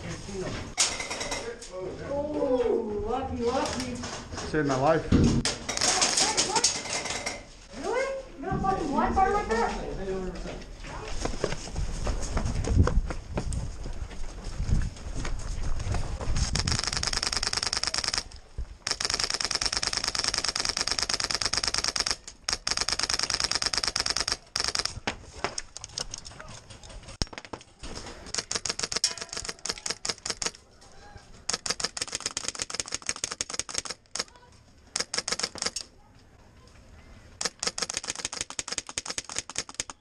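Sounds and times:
airsoft guns firing bursts: 0:16.6 - 0:25.1, 0:28.3 - 0:30.6, 0:31.5 - 0:34.3, 0:35.0 - 0:35.8, 0:37.4 - 0:40.0.

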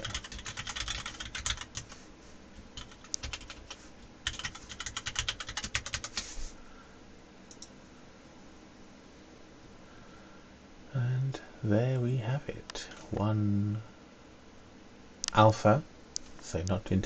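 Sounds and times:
typing on computer keyboard: 0:00.0 - 0:02.0, 0:02.8 - 0:06.2.

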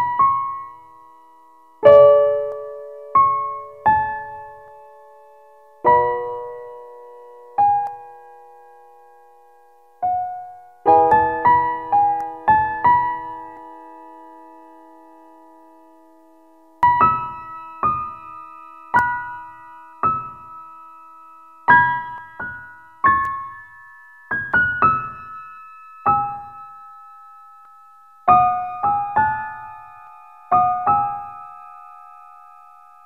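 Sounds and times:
slow piano melody: 0:00.0 - 0:33.0.

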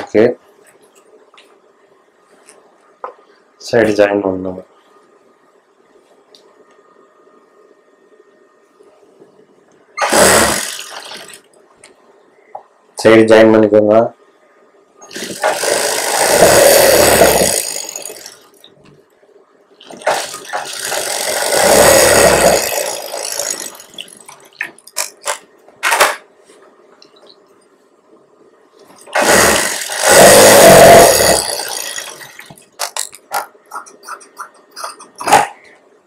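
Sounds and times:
sewing machine stitching: 0:10.0 - 0:11.4, 0:15.0 - 0:18.4, 0:19.9 - 0:24.2, 0:29.1 - 0:33.0.

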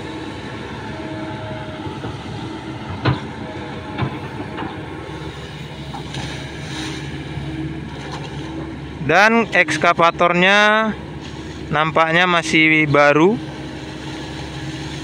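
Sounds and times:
excavator diesel engine running: 0:00.0 - 0:15.0
sharp knocks: 0:02.9 - 0:03.3.

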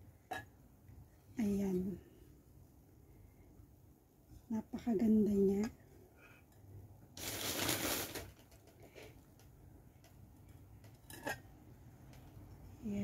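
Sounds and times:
wrapping crinkling: 0:07.2 - 0:08.7.

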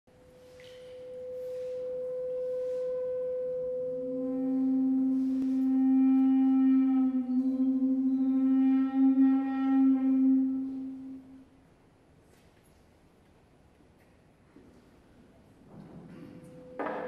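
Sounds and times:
low drone tone with overtones: 0:00.1 - 0:11.6
steady pure drone tone: 0:00.1 - 0:11.7
soft brushing swishes: 0:00.4 - 0:03.0.

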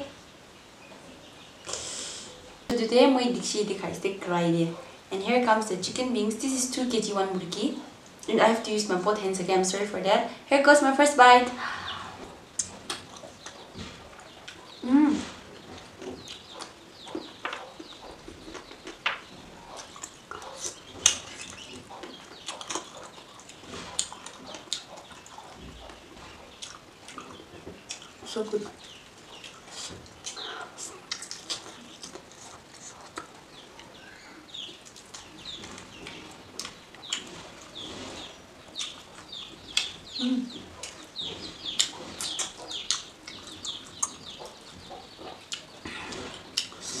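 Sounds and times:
wet chewing and lip-smacking: 0:12.6 - 0:14.8, 0:15.7 - 0:34.0, 0:38.7 - 0:47.0.

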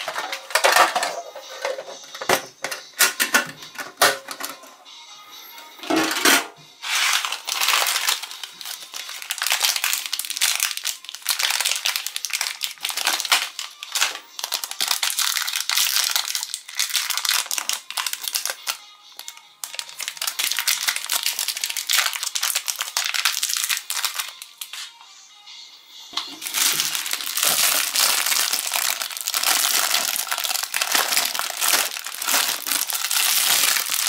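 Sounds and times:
crinkly wrapper being torn open: 0:06.9 - 0:24.7, 0:26.4 - 0:34.0.

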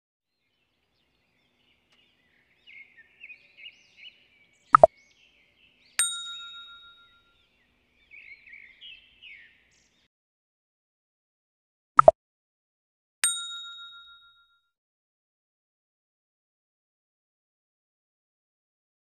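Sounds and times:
small bird chirping: 0:00.3 - 0:10.1
bell-like ding: 0:06.0 - 0:07.4, 0:13.2 - 0:14.7.

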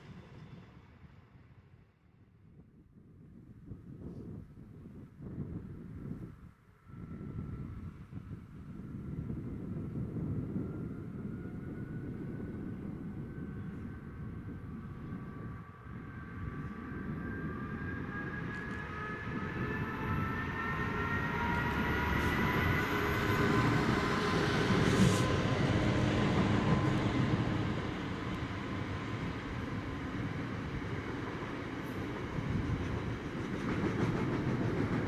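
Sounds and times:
diesel locomotive engine whine: 0:00.0 - 0:35.0
train wheels rumbling on rails: 0:07.1 - 0:35.0.

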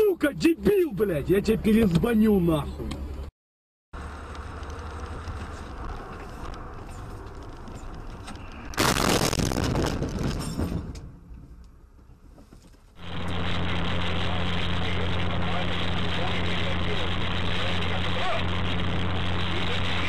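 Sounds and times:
car road and engine noise: 0:00.0 - 0:03.3, 0:04.0 - 0:20.0
vehicle collision crash: 0:08.7 - 0:11.2.

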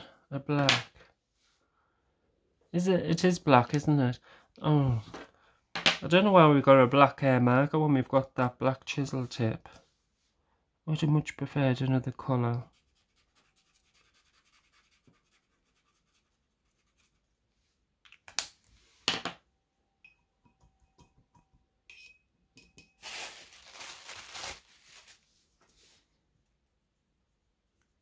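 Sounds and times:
paint marker scratching on card: 0:12.7 - 0:17.2.

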